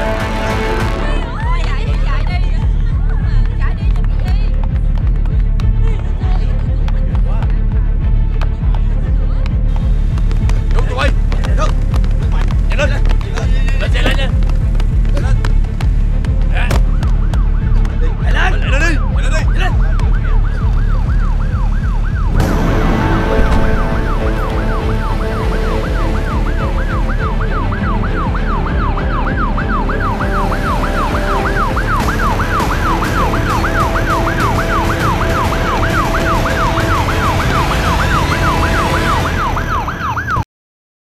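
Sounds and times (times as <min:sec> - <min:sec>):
music: 0:00.0 - 0:40.4
emergency siren fast yelp: 0:23.8 - 0:40.4.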